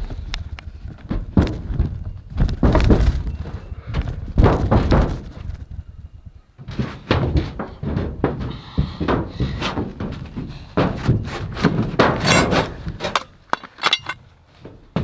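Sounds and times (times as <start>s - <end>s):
thunks on metal roof: 4.3s - 5.3s, 6.6s - 13.1s.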